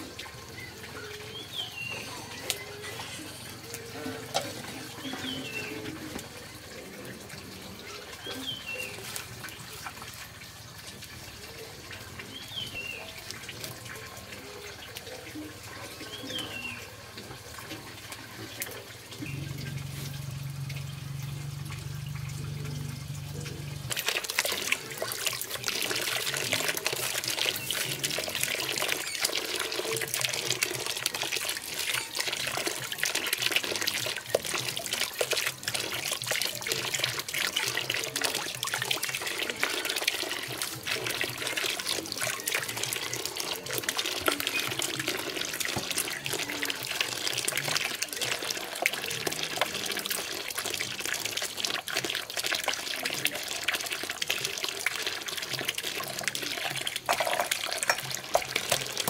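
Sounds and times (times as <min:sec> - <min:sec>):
water running and splashing: 0:00.0 - 0:59.0.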